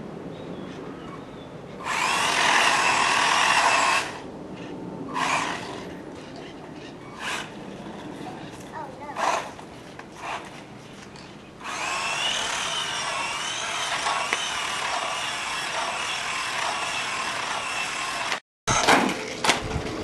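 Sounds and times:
toy car motor whining: 11.6s - 18.4s.

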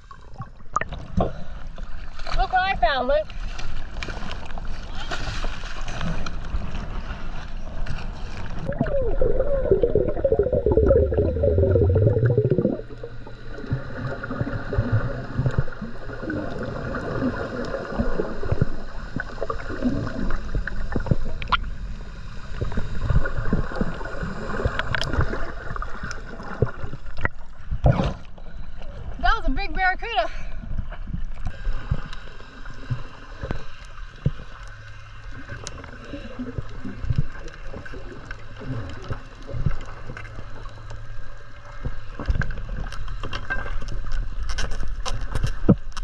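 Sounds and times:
water rushing and bubbling: 0.0s - 29.9s, 30.5s - 46.0s
muffled underwater sound: 8.6s - 21.6s.

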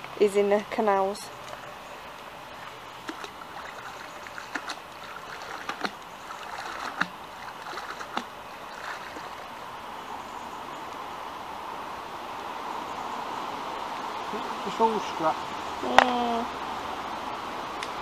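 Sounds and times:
water splashing and sloshing: 1.3s - 9.9s.

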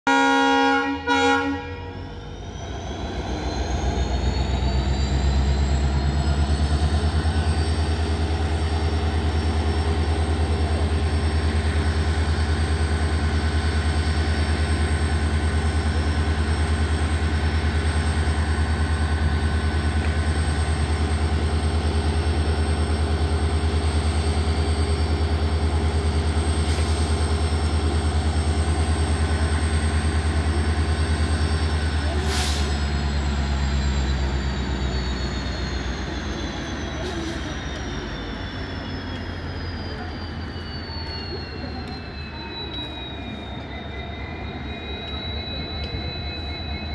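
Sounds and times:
locomotive horn blasts: 0.1s - 2.2s
diesel engine revving and humming: 2.2s - 13.8s.

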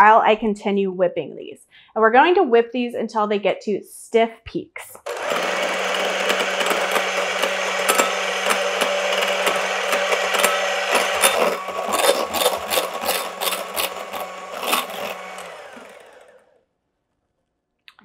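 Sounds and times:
electric hand mixer running: 5.0s - 16.7s.

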